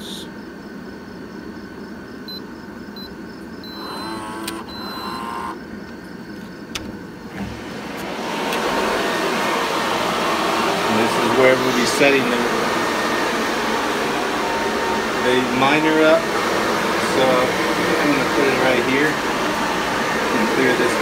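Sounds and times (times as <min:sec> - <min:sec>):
rush of fan and air noise: 0:00.0 - 0:21.0
door keypad beeping: 0:03.0 - 0:05.6.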